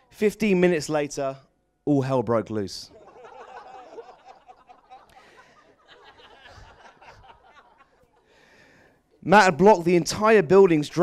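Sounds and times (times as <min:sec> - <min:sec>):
audience laughing quietly: 0:03.0 - 0:08.3.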